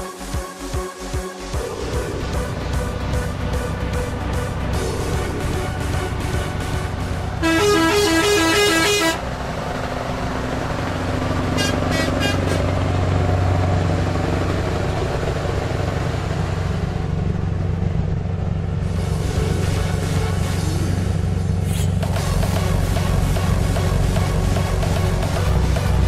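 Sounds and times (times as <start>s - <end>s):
truck engine droning: 0.2s - 26.0s
air horn pulsing: 7.2s - 9.4s, 11.4s - 12.9s.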